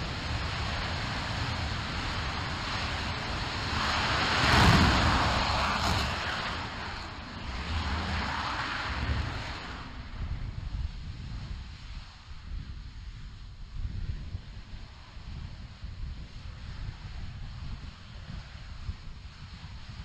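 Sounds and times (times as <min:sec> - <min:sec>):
rocket engine roaring: 0:00.0 - 0:11.7.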